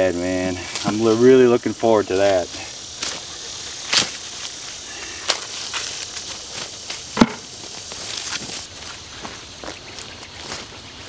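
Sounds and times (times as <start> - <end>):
dry leaves rustling: 0.0 - 11.0
corn ears snapping off stalks: 3.9 - 4.6, 5.2 - 8.6.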